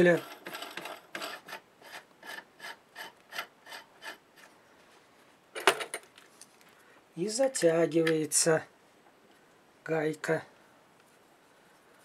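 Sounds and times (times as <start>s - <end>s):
metal nut scraping on thread: 0.0s - 4.5s.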